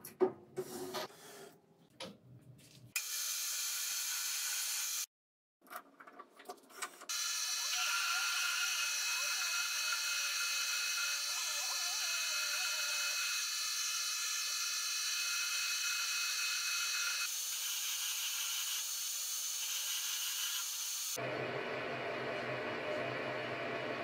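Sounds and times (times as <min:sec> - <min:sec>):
drill cutting metal: 0:03.0 - 0:05.1, 0:07.1 - 0:21.2
metal lathe whine and hiss: 0:07.1 - 0:11.4.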